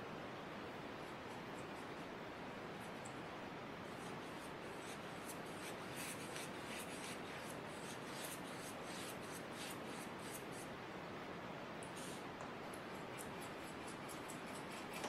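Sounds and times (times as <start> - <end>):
steady hiss: 0.0 - 15.0
paintbrush brushing on paper: 3.8 - 10.7, 12.9 - 15.0.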